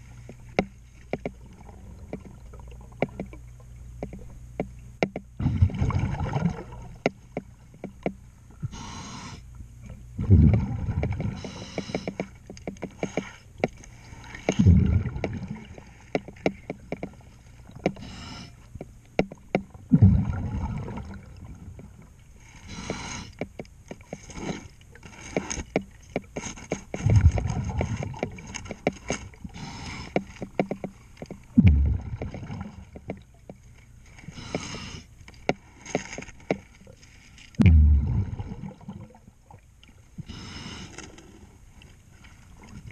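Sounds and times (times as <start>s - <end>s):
exhaled bubbles underwater: 5.4s - 7.1s, 10.2s - 11.6s, 14.5s - 15.8s, 19.7s - 22.1s, 31.5s - 33.0s, 37.6s - 39.6s
hissing regulator inhalations: 8.6s - 9.5s, 11.4s - 12.3s, 17.9s - 18.7s, 22.4s - 23.5s, 29.5s - 30.4s, 34.2s - 35.1s, 40.2s - 41.5s.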